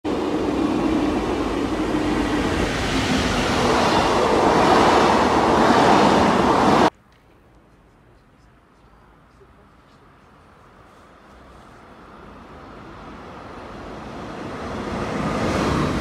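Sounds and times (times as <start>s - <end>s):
train passing at speed: 0.1s - 6.9s, 10.2s - 16.0s
wheels rushing on rails: 0.1s - 6.9s, 10.6s - 16.0s.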